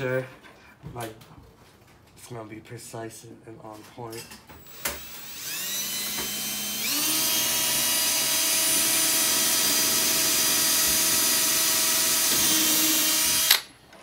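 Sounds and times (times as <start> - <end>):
cordless drill whining: 4.6 - 13.7.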